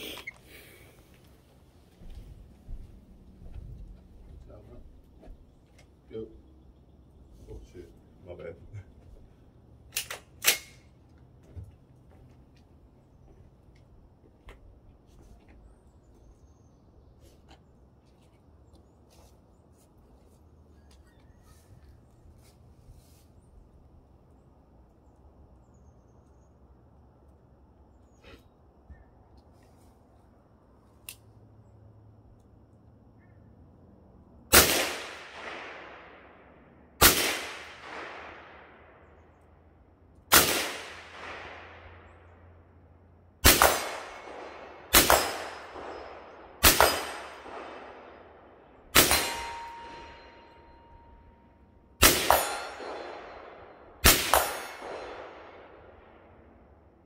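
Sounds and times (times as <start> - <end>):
rifle shots echoing: 34.5 - 39.2, 40.3 - 42.2, 43.4 - 51.0, 52.0 - 56.5.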